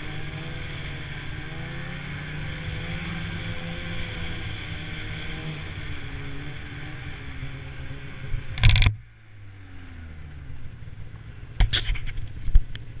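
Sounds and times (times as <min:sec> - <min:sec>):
snowmobile engine running: 0:00.0 - 0:09.0
knocks and rattles: 0:08.6 - 0:09.0.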